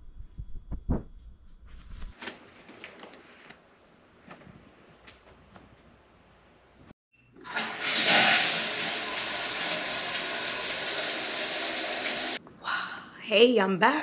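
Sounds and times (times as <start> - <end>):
shower water rushing onto tiles: 7.4 - 12.4.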